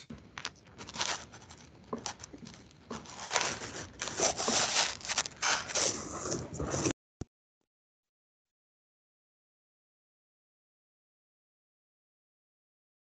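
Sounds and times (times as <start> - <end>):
paper rustling and crinkling: 0.2 - 6.9.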